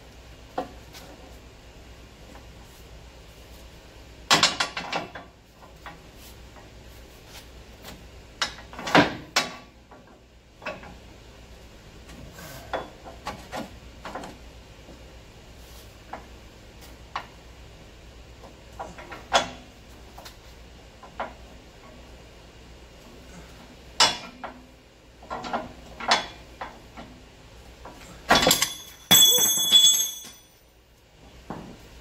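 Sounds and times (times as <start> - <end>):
metal clatter: 28.3 - 30.6.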